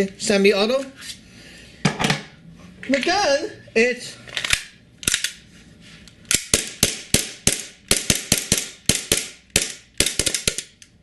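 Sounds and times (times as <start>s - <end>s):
airsoft pistol shots: 6.4s - 10.7s.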